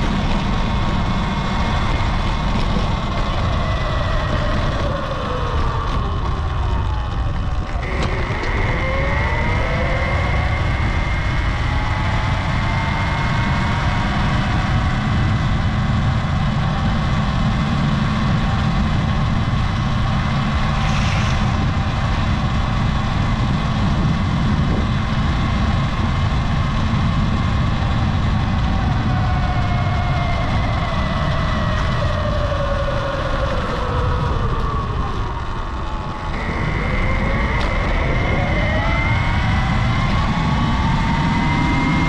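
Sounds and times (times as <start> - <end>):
electric motor whine: 0.0 - 42.0
low rushing noise: 0.0 - 42.0.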